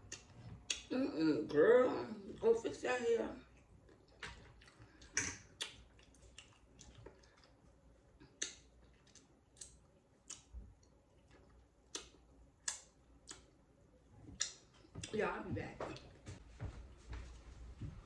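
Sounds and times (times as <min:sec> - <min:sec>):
wet chewing clicks and smacks: 0:00.0 - 0:00.9, 0:03.5 - 0:15.1.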